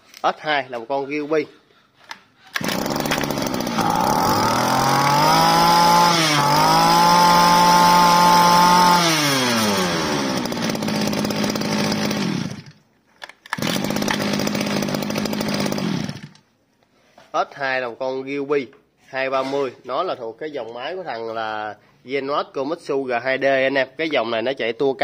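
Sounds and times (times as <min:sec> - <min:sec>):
brush cutter engine revving: 0:02.5 - 0:12.8, 0:13.5 - 0:16.4.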